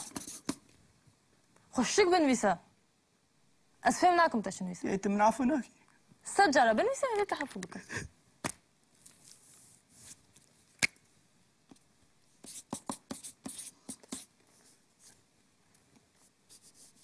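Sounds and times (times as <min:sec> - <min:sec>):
marker scratching on paper: 0:00.0 - 0:00.6, 0:12.4 - 0:14.3, 0:16.5 - 0:17.0.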